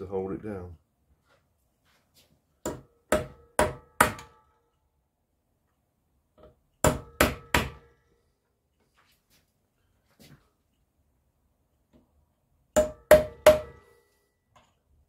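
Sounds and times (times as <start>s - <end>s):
hammer striking metal punch: 2.6s - 4.5s, 6.8s - 7.9s, 12.8s - 13.9s.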